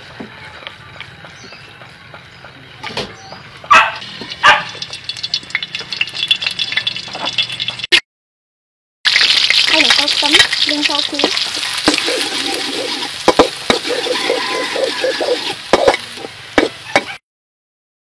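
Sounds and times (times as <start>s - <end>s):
garlic sizzling in hot oil: 4.0s - 7.9s, 9.1s - 17.2s
metal spatula scraping a wok: 10.4s - 17.2s.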